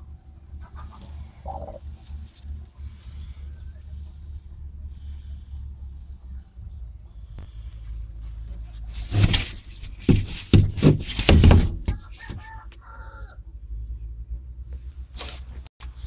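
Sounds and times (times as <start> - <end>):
hen short pitched calls: 0.6 - 2.0
hen harsh raspy calls: 0.6 - 2.2.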